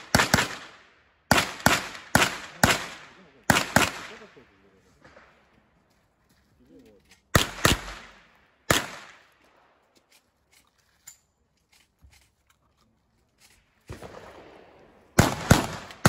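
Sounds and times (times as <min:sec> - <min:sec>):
gunshots: 0:00.0 - 0:04.4, 0:07.3 - 0:09.4, 0:13.8 - 0:16.0.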